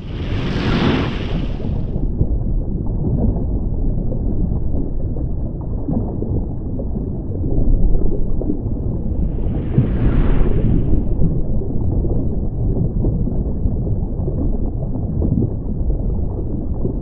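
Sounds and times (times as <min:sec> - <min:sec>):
muffled underwater rumble: 0:00.0 - 0:17.0.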